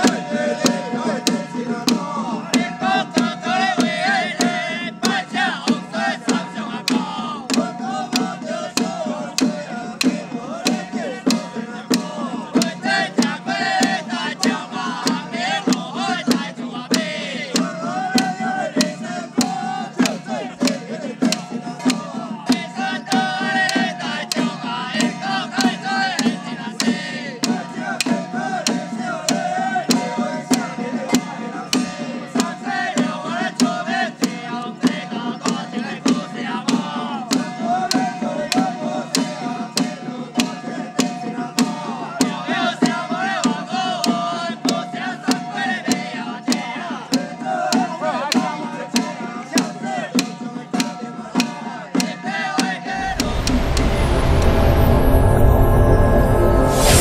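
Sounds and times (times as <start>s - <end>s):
sharp percussion strikes: 0.0s - 42.4s, 52.8s - 57.0s
wavering melody: 53.0s - 57.0s.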